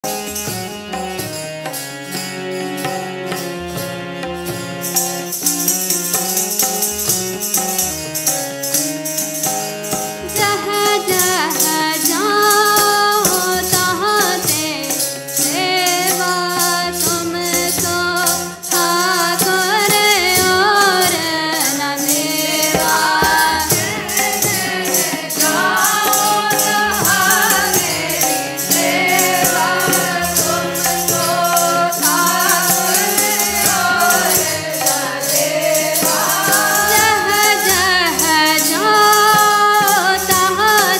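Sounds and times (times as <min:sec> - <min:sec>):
harmonium chords: 0:00.0 - 0:40.9
tabla rhythm: 0:00.0 - 0:40.9
person singing: 0:10.2 - 0:40.9.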